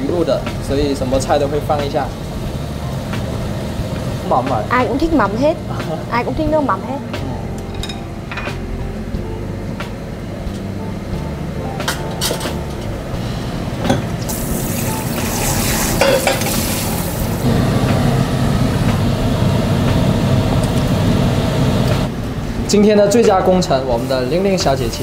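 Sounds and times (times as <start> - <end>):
loud sizzle: 0.0 - 25.0
steady low hum: 0.0 - 25.0
metal utensil clinking on pan: 16.0 - 16.5.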